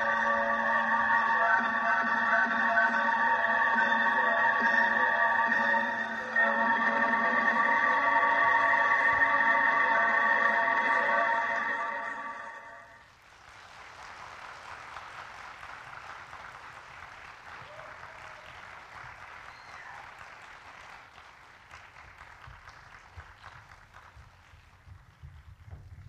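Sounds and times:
audience applauding: 0:13.1 - 0:25.6.

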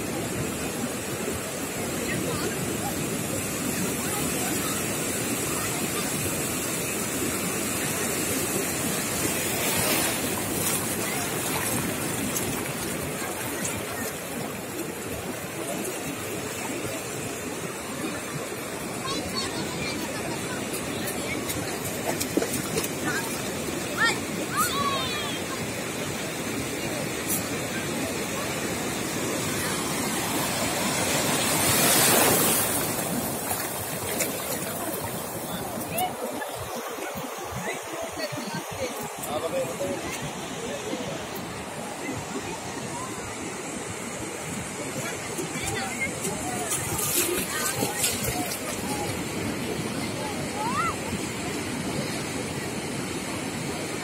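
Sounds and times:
surf washing over shallows: 0:00.0 - 0:54.0.

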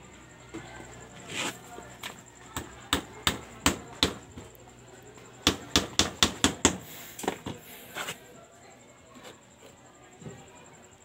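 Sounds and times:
hammer knocking on wood: 0:02.6 - 0:04.2, 0:05.4 - 0:06.8.

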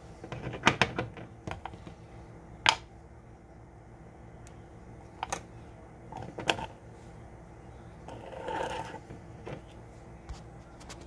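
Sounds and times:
lid scraping on jar threads: 0:08.1 - 0:09.6.

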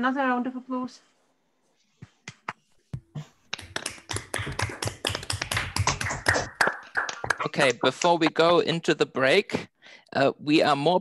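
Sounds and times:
people clapping through microphones: 0:03.5 - 0:08.5.

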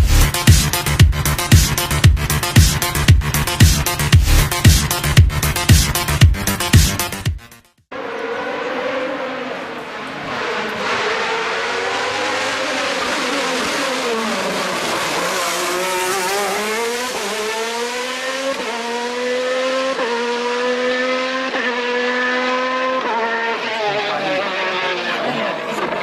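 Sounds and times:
racing car engine shifting up: 0:08.0 - 0:26.0.

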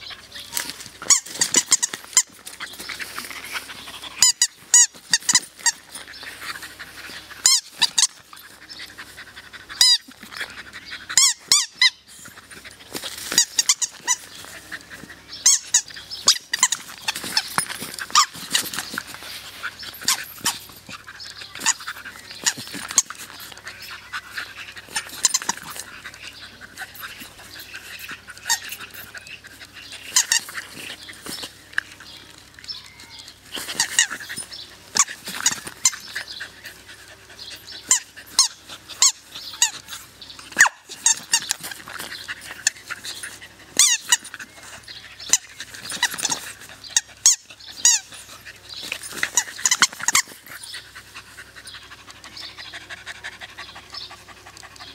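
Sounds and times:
rubber ball toy squeaking: 0:00.5 - 0:02.3, 0:04.2 - 0:05.9, 0:07.4 - 0:08.2, 0:09.8 - 0:10.1, 0:11.1 - 0:12.1, 0:13.3 - 0:14.4, 0:15.4 - 0:19.0, 0:24.7 - 0:25.9, 0:28.2 - 0:31.5, 0:32.7 - 0:36.1, 0:37.8 - 0:40.0, 0:40.6 - 0:42.9, 0:43.7 - 0:44.6, 0:45.2 - 0:48.2, 0:48.8 - 0:50.5.

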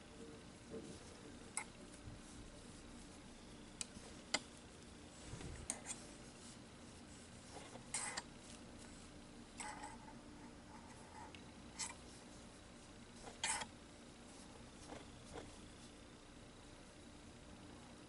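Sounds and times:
crochet hook working yarn: 0:05.6 - 0:12.5, 0:13.1 - 0:15.9.

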